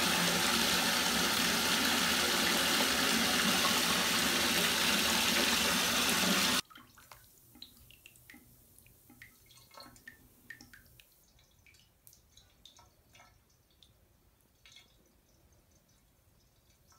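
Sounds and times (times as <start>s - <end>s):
water running into bathtub: 0.0s - 6.6s
water dripping in tub: 6.6s - 16.9s.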